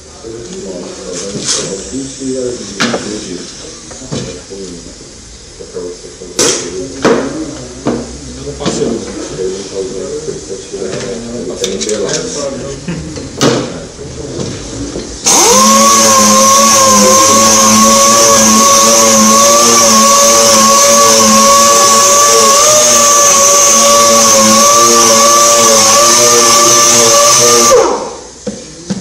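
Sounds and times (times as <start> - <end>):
air sander running with high hiss: 15.2 - 28.4.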